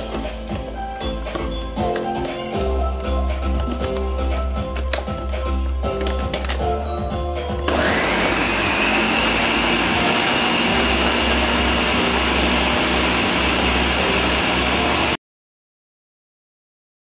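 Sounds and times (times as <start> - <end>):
blender motor whining: 7.7 - 15.2.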